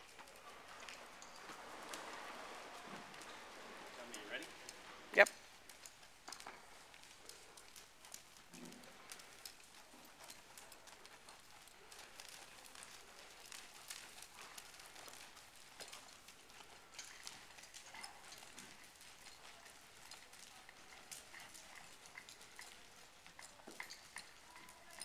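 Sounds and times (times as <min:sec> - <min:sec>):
horse hoofbeats on dirt: 0:00.0 - 0:25.0.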